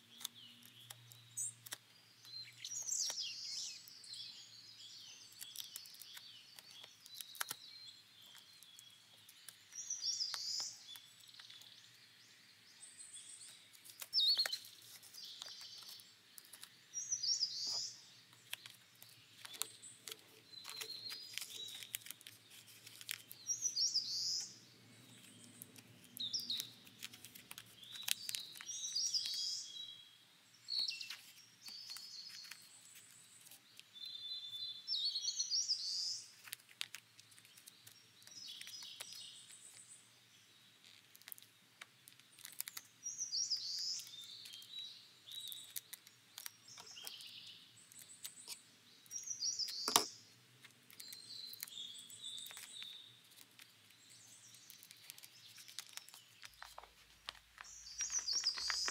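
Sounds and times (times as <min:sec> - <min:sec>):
small birds chirping: 0:00.0 - 0:58.9
tape-wrapped paper crinkling: 0:05.3 - 0:07.6, 0:17.7 - 0:23.5, 0:25.1 - 0:29.3, 0:36.3 - 0:39.8, 0:40.8 - 0:42.9, 0:49.9 - 0:58.9.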